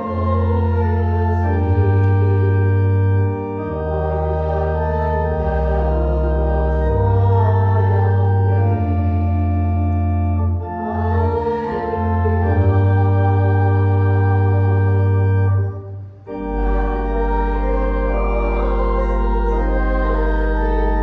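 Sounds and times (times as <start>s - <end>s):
organ playing sustained chords: 0.0s - 21.0s.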